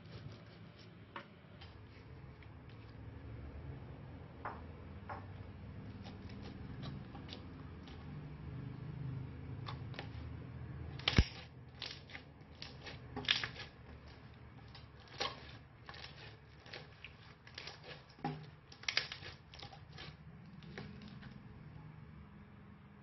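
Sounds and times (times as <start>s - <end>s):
slime squishing crackles and pops: 11.0s - 13.7s.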